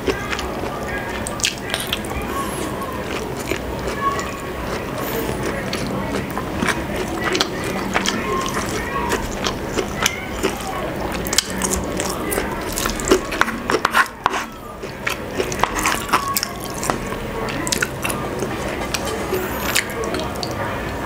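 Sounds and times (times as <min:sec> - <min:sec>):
wet clicks and sticky squelches: 0:05.4 - 0:21.0.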